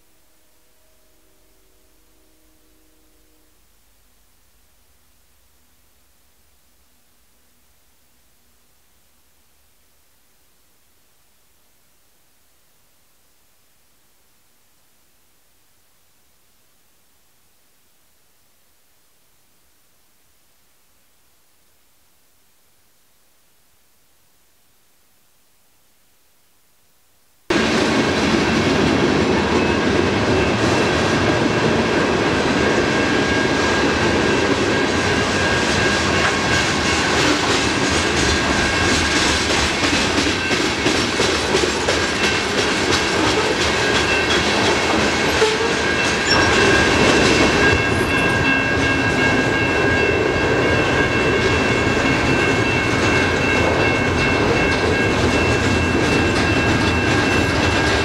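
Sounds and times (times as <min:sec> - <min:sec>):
freight train wheels clattering: 0:27.5 - 0:58.0
thin high-pitched tones: 0:45.6 - 0:51.8.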